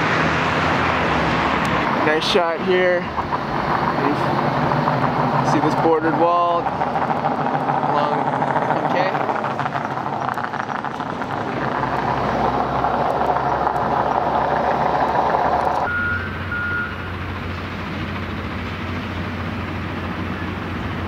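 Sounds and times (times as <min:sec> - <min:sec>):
construction machinery engine hum: 0:00.0 - 0:21.0
moving vehicle rushing noise: 0:00.0 - 0:21.0
short high beeps: 0:15.9 - 0:17.1.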